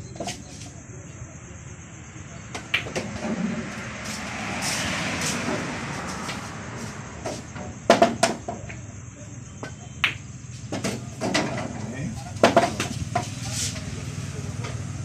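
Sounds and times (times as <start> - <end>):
pool balls clicking: 2.6 - 3.3, 9.6 - 13.3
rushing noise: 3.2 - 7.2.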